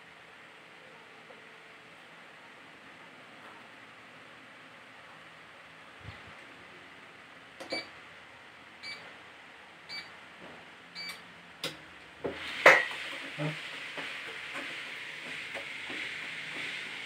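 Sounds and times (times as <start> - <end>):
treadmill console beeping: 7.6 - 8.0, 8.8 - 9.0, 9.9 - 10.1, 11.0 - 11.2
treadmill belt motor hissing: 12.2 - 17.0.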